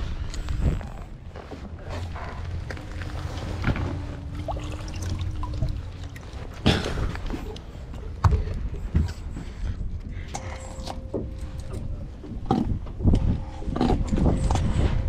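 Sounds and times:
low rumble: 0:00.0 - 0:15.0
water splashing against boat: 0:01.6 - 0:08.8.

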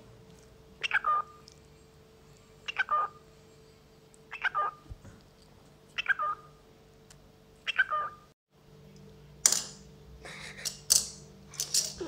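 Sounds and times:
cockatiel calls: 0:00.8 - 0:01.4, 0:02.7 - 0:03.2, 0:04.3 - 0:04.8, 0:06.0 - 0:06.5, 0:07.6 - 0:08.2.

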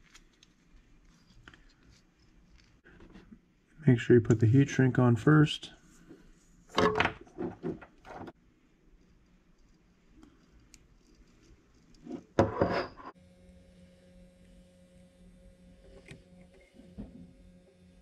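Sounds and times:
soldering gun humming: 0:13.2 - 0:18.0.

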